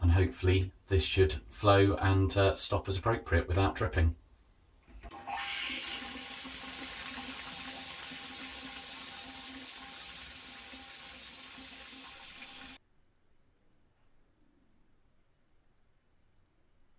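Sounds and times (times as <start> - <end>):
water rushing into tank: 5.0 - 12.8.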